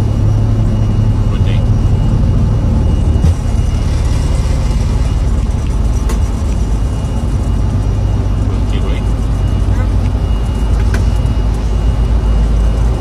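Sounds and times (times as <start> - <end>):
jet engines rumbling: 0.0 - 13.0.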